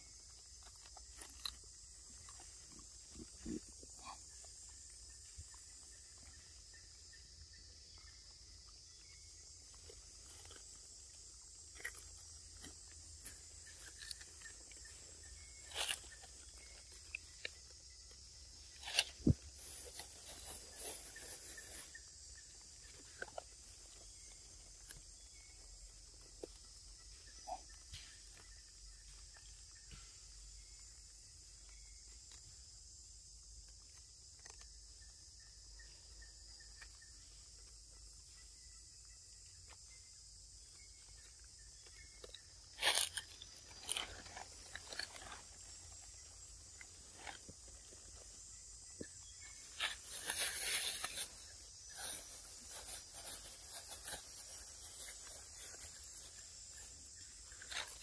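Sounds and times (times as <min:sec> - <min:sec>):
monkey crunching and chewing: 0:00.4 - 0:04.9, 0:09.9 - 0:17.7, 0:42.2 - 0:47.9.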